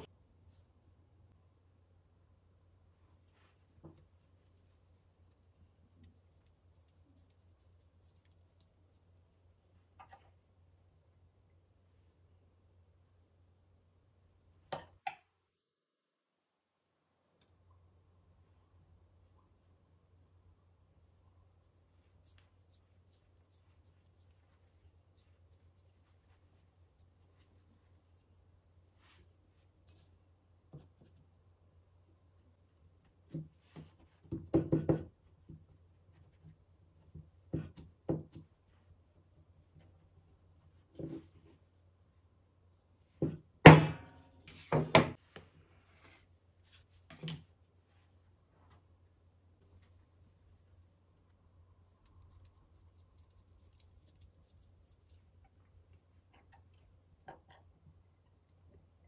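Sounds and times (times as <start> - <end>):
low steady hum: 0.0 - 59.0.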